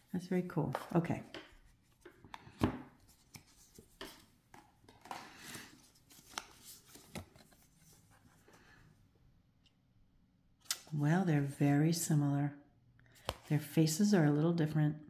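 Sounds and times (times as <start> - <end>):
cards sliding and rustling: 1.4 - 8.7, 13.2 - 13.5.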